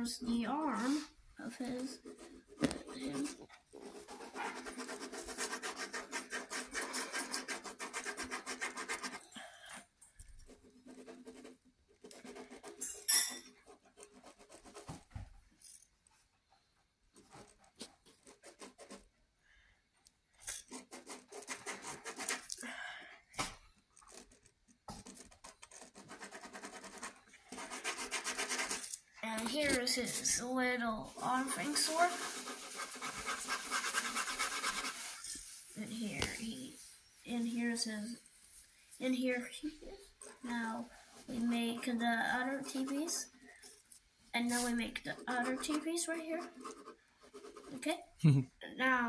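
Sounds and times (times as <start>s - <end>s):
marker scribbling on paper: 1.6s - 9.4s, 10.3s - 15.2s, 17.2s - 19.1s, 20.5s - 22.6s, 25.0s - 36.7s, 40.2s - 43.4s, 44.4s - 48.0s.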